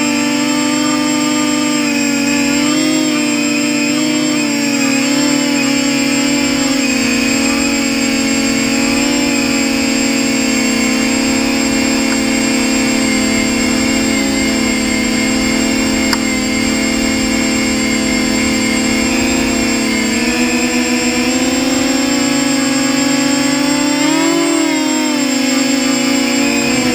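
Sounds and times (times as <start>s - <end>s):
drone motors whining: 0.0s - 26.9s.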